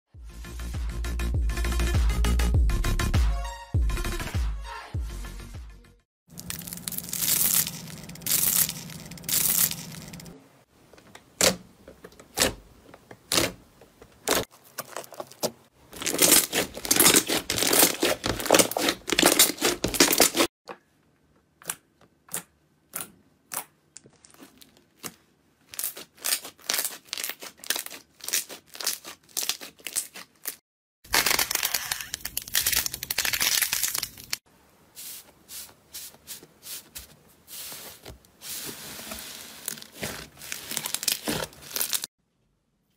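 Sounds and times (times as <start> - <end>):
slime crackling: 14.3 - 20.5, 39.6 - 42.1.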